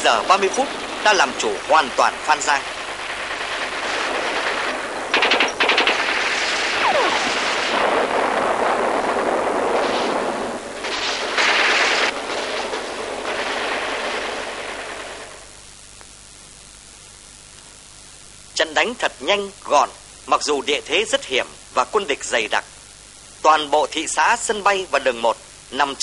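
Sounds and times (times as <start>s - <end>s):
dense din of shooting: 0.0s - 15.6s
automatic gunfire: 2.0s - 8.2s.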